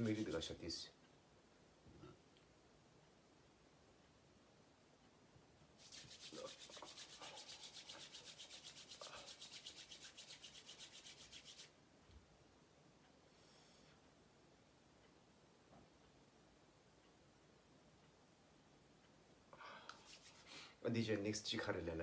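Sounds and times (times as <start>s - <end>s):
palms rubbing together: 0.0s - 0.6s, 5.8s - 11.8s, 19.9s - 20.7s.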